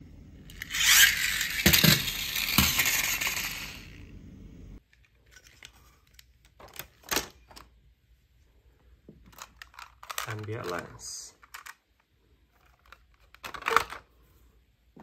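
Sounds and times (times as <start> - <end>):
plastic toy clicks and knocks: 0.5 - 3.8, 9.3 - 11.9
toy car clattering on tile floor: 0.5 - 4.0, 9.3 - 12.0.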